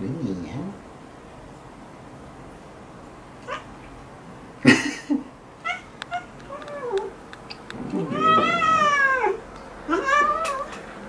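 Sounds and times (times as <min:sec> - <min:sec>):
cat meowing: 0:03.4 - 0:03.8, 0:05.6 - 0:07.2, 0:07.9 - 0:10.8.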